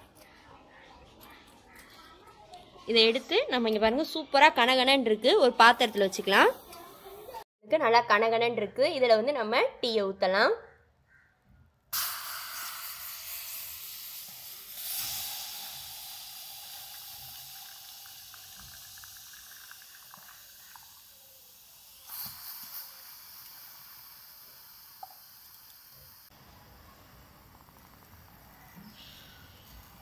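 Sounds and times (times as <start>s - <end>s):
tea hissing on a hot clay pot: 12.0s - 30.0s.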